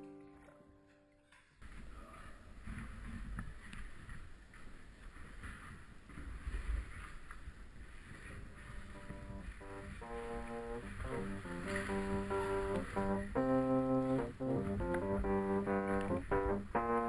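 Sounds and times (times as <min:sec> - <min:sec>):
plucked-string background music: 0:00.0 - 0:01.3, 0:08.9 - 0:17.0.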